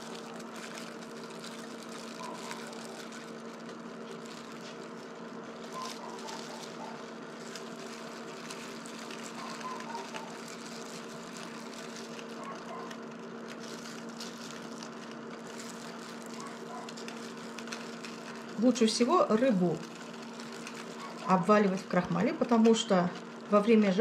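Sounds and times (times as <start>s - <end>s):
gloved hands rustling: 0.0s - 18.6s
cooktop electrical hum: 0.0s - 24.0s
fan noise: 0.0s - 24.0s.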